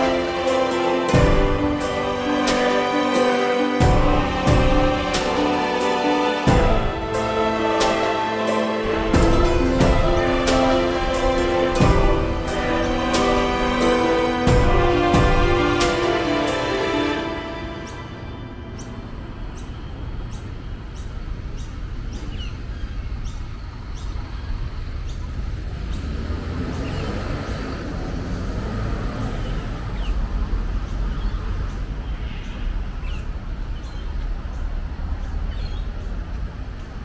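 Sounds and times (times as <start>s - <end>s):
birds chirping: 0.0s - 36.6s
traffic rumble: 0.0s - 37.0s
vehicle passing: 25.3s - 32.0s.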